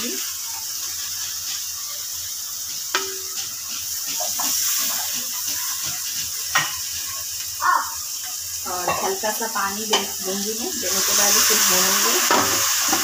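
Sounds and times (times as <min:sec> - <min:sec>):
vegetables sizzling in a pan: 0:00.0 - 0:13.0
metal clink against pan: 0:02.9 - 0:04.2.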